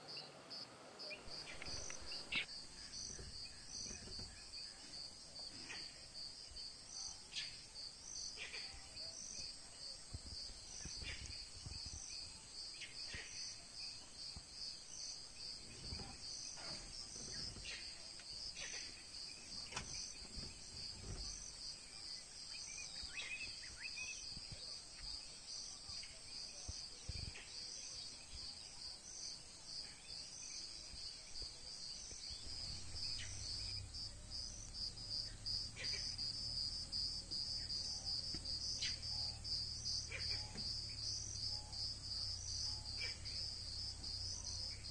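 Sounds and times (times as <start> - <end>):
pulsing insect chirp: 0.5 - 44.9
high-pitched insect chorus: 1.3 - 44.9.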